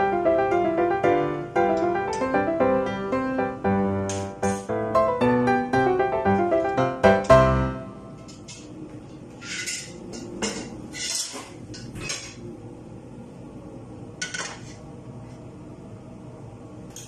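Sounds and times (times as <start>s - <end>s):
cookware clattering on metal grate: 9.4s - 12.4s.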